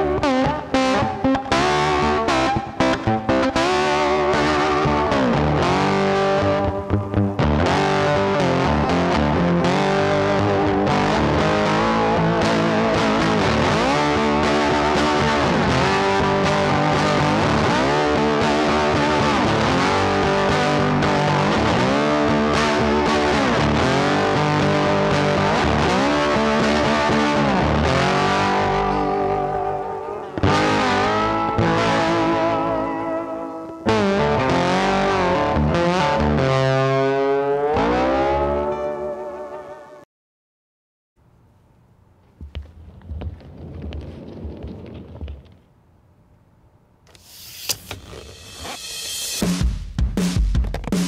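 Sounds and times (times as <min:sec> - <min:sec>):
distorted electric guitar music: 0:00.0 - 0:40.0.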